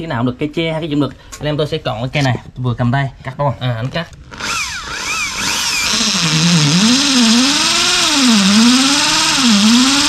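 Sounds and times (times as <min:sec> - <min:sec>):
electric power tool cutting: 0:04.3 - 0:10.0.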